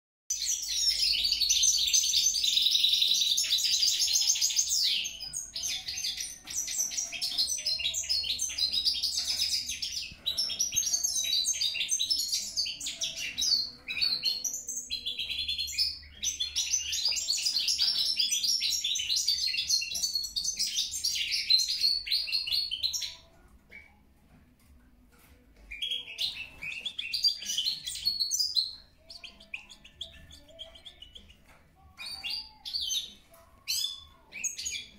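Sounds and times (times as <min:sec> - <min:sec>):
goldfinch twittering song: 0:25.6 - 0:34.9.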